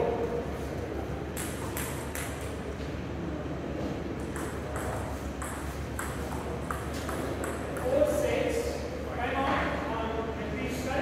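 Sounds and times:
table tennis ball hits: 1.3 - 2.6, 4.2 - 8.2.

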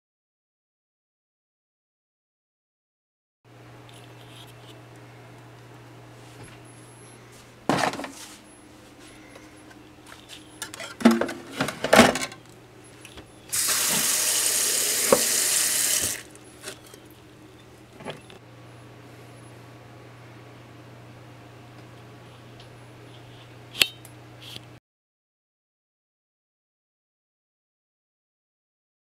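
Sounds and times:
tap water running: 13.5 - 16.4.

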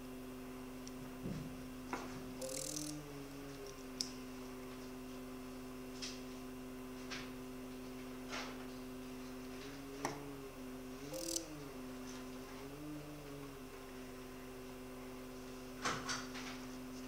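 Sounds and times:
two-note machine hum: 2.4 - 4.1, 10.1 - 15.2.

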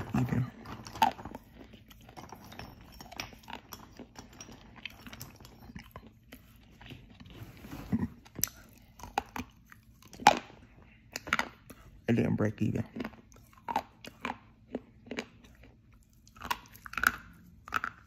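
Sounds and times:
chewing clay crackles: 0.0 - 18.0.

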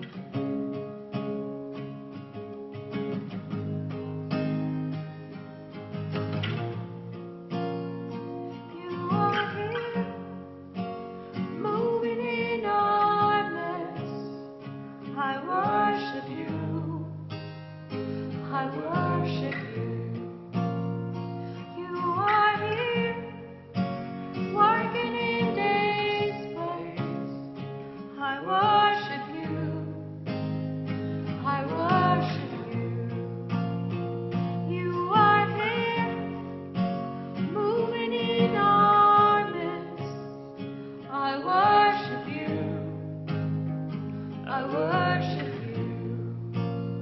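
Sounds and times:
strummed acoustic guitar: 0.0 - 47.0
person singing worship song: 18.4 - 20.2, 24.5 - 27.5, 31.4 - 33.3, 44.4 - 46.5.

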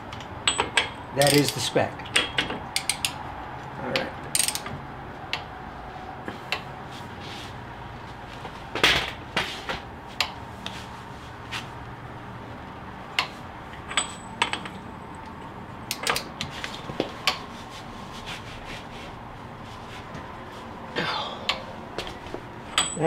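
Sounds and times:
steel tools clinking: 0.4 - 3.2, 22.7 - 23.0.

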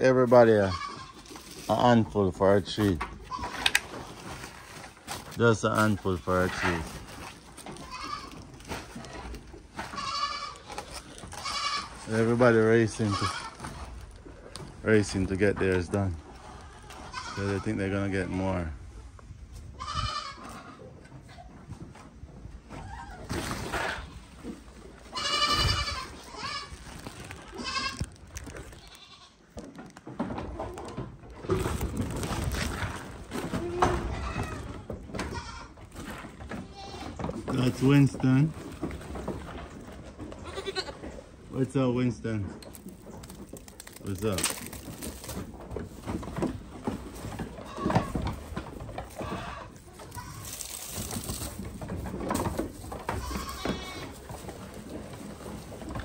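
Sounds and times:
knocks and shuffling: 0.0 - 56.0
goats bleating: 0.5 - 1.4, 7.7 - 9.0, 9.8 - 12.1, 13.0 - 13.8, 16.4 - 17.7, 25.1 - 29.5, 33.5 - 35.8, 40.4 - 41.1, 49.1 - 51.0, 53.0 - 54.3.

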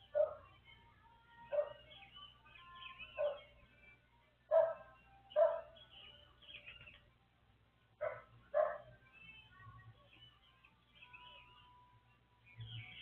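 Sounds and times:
small birds chirping: 0.0 - 13.0
dog barking: 0.1 - 0.5, 1.5 - 1.8, 3.2 - 3.5, 4.5 - 5.8, 8.0 - 8.9.

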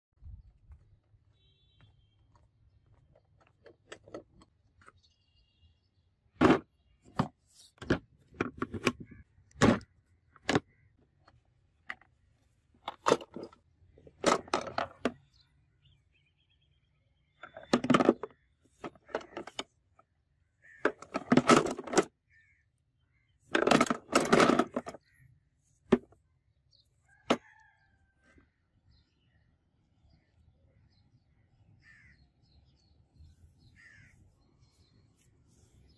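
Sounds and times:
sharp knocks and clicks: 20.8 - 22.1, 23.5 - 25.0.

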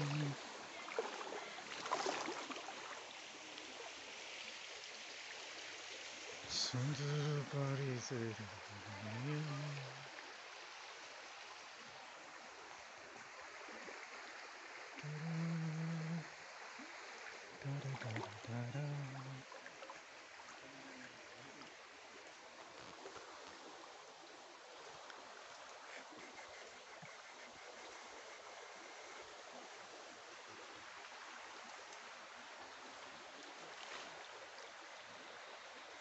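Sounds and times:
person's voice: 0.0 - 0.4, 6.5 - 10.1, 15.0 - 16.3, 17.6 - 19.4
stream water rushing: 0.0 - 36.0.

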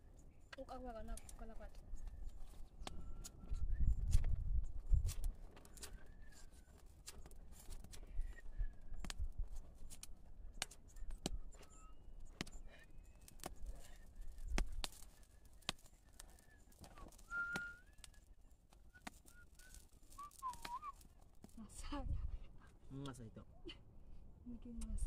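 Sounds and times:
campfire crackling and popping: 0.0 - 22.0
whistled note: 15.2 - 21.0.

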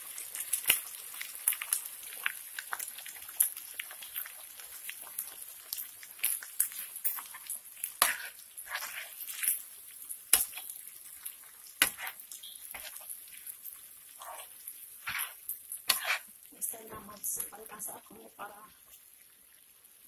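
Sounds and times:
food sizzling in frying pan: 0.0 - 20.0
metal spoon stirring: 5.7 - 16.4.

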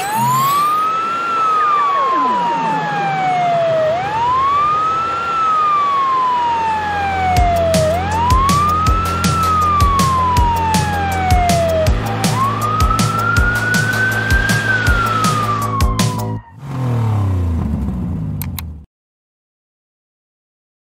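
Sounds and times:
ambulance siren wailing: 0.0 - 16.6.

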